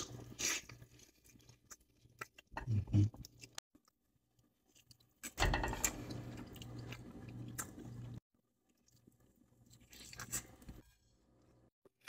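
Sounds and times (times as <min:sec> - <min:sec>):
person chewing: 0:00.0 - 0:10.8
person humming mm: 0:02.6 - 0:03.2.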